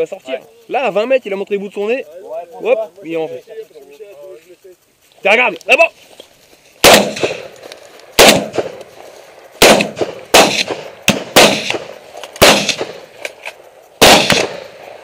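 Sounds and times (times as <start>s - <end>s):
gunshots with echo: 6.8s - 7.5s, 8.2s - 8.8s, 9.6s - 13.1s, 14.0s - 15.0s.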